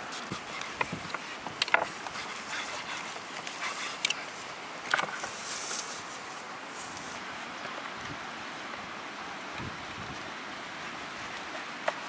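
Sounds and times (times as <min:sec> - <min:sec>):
river rushing: 0:00.0 - 0:12.0.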